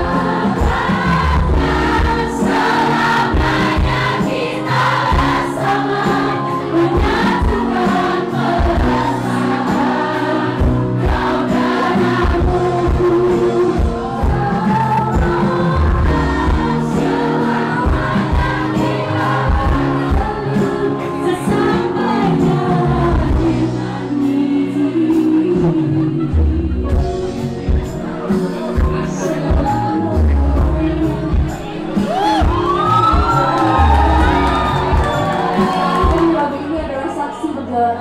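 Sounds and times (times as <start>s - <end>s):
audience singing along: 0.0s - 26.4s, 28.2s - 36.7s
pop band playing live: 0.0s - 38.0s
woman singing: 4.2s - 27.1s, 29.0s - 31.6s, 35.5s - 38.0s.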